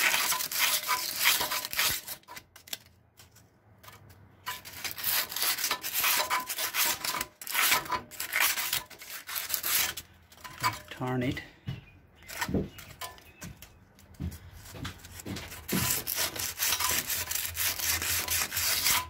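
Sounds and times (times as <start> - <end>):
sandpaper scrubbing on metal: 0.0 - 2.3, 4.7 - 10.0, 15.1 - 19.0.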